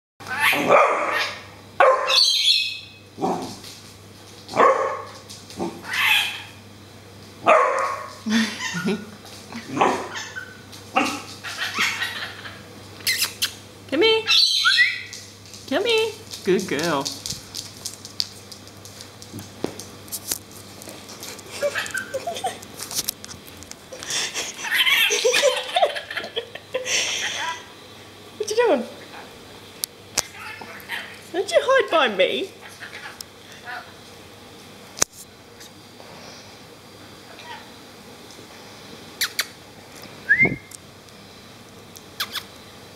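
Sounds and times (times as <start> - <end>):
puppy barking: 0.3 - 2.5, 4.5 - 5.2, 5.8 - 6.6, 7.4 - 8.8, 9.8 - 12.4
animal claws on tiled floor: 3.2 - 6.5, 14.7 - 25.3
bird squawking chatter: 5.9 - 6.5, 11.4 - 13.6, 14.3 - 15.1, 21.6 - 22.4, 30.2 - 31.2
people laughing: 8.3 - 9.2, 24.1 - 27.6.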